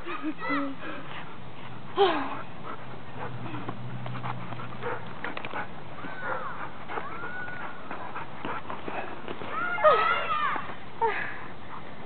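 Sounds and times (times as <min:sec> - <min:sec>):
dog crying: 0:06.0 - 0:07.9
dog whining: 0:06.0 - 0:07.9.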